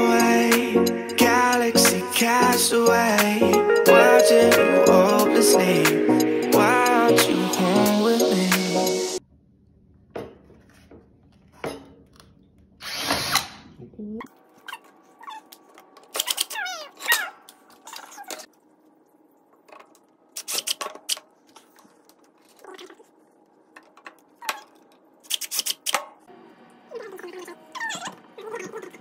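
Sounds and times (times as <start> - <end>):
cordless drill driving screws: 12.8 - 13.6.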